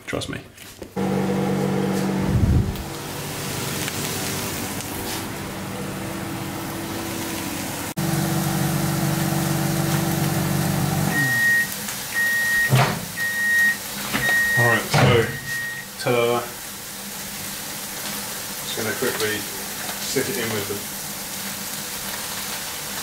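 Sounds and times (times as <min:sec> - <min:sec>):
microwave oven humming: 0:01.0 - 0:16.0
short high beeps: 0:11.1 - 0:15.9.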